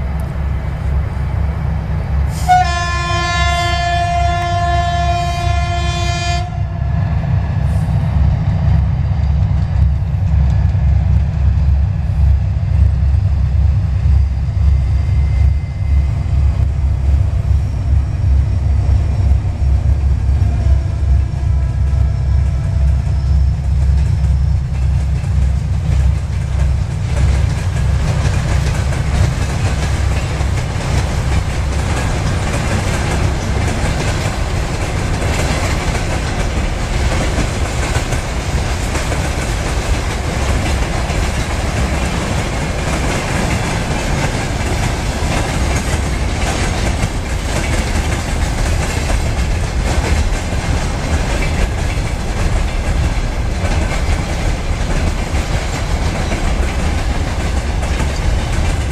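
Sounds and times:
locomotive horn: 0:02.3 - 0:06.9, 0:20.3 - 0:23.0
tank wagons rumbling and clattering: 0:22.2 - 0:58.9.

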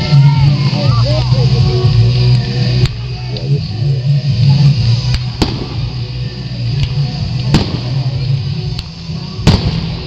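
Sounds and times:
low background rumble: 0:00.0 - 0:10.0
fireworks bangs: 0:05.1 - 0:08.2, 0:09.4 - 0:10.0.

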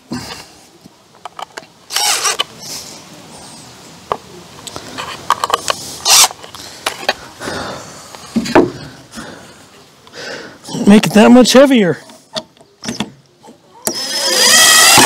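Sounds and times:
cordless drill driving screws: 0:01.9 - 0:02.5, 0:06.0 - 0:06.3, 0:13.8 - 0:15.0.

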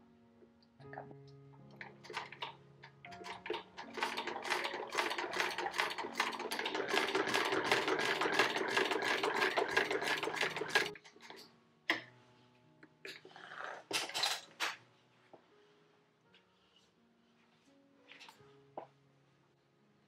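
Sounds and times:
sewing machine clicking: 0:01.8 - 0:11.4.

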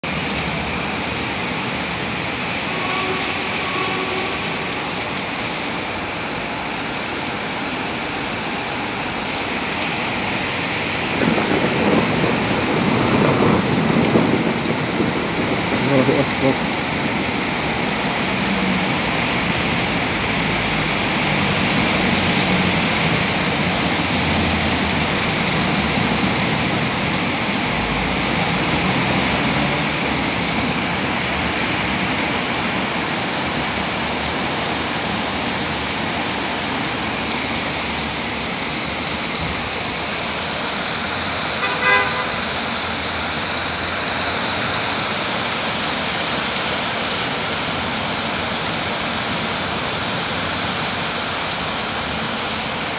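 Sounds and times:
heavy rain on wet street: 0:00.0 - 0:52.9
traffic rumbling: 0:00.0 - 0:52.9
car horn toot: 0:02.7 - 0:04.7, 0:41.6 - 0:42.4.

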